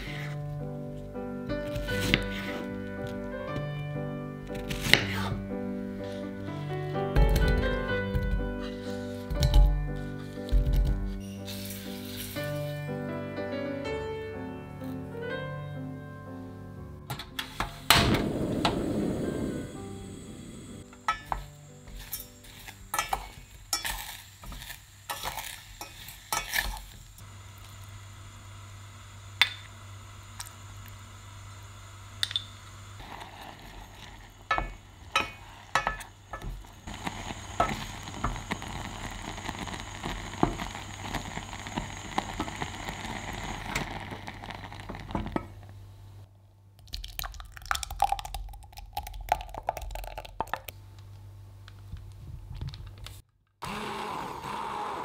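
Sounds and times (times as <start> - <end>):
fruit sizzling and bubbling: 0.0 - 3.6, 4.5 - 12.9, 17.7 - 51.0
sauce pouring into glass jug: 46.8 - 50.7.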